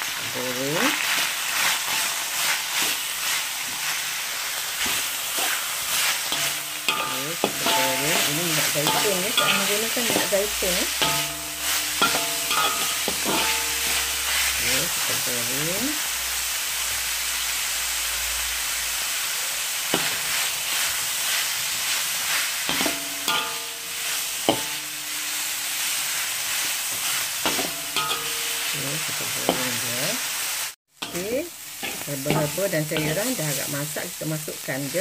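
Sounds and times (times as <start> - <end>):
food sizzling in a wok: 0.0 - 35.0
metal spatula scraping pan: 4.8 - 15.8, 20.0 - 30.1, 31.0 - 33.8.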